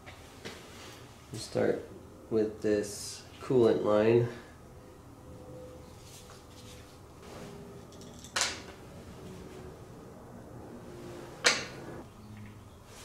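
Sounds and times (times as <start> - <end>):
screwdriver handling sounds: 7.8 - 8.7.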